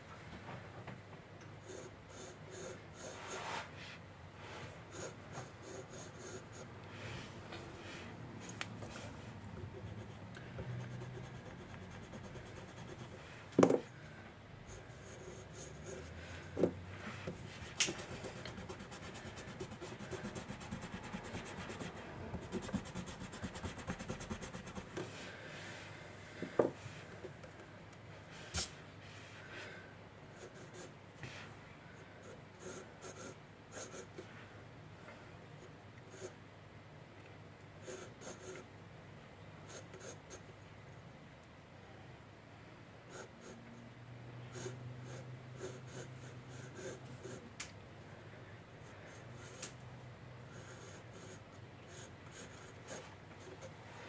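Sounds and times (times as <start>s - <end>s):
pencil sketching on paper: 1.6s - 3.7s, 4.9s - 6.7s, 9.8s - 13.2s, 14.7s - 16.6s, 17.3s - 25.1s, 32.6s - 34.1s, 37.8s - 38.6s, 43.1s - 43.6s, 44.5s - 47.4s, 50.5s - 53.6s.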